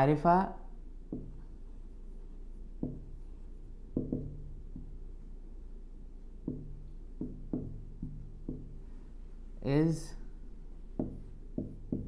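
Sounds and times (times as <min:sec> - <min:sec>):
steady low hum: 0:00.0 - 0:12.0
marker tapping on whiteboard: 0:01.0 - 0:01.8, 0:02.8 - 0:05.1, 0:06.4 - 0:09.0, 0:10.9 - 0:12.0.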